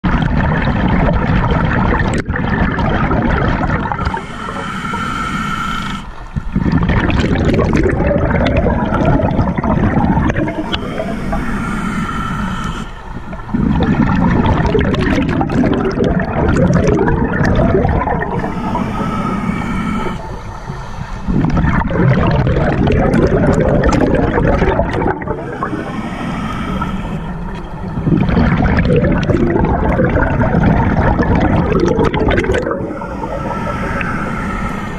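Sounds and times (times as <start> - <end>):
exhaled air bubbling underwater: 0.0 - 34.9
regulator inhale hiss: 4.0 - 6.6, 10.2 - 13.7, 18.0 - 21.5, 25.0 - 28.1, 32.6 - 34.9.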